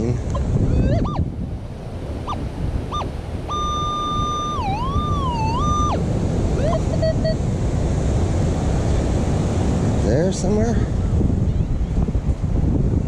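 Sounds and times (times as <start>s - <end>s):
surf: 0.0s - 13.0s
wind: 0.0s - 13.0s
metal detector beeps and tones: 0.3s - 1.3s, 2.2s - 6.0s, 6.6s - 7.4s.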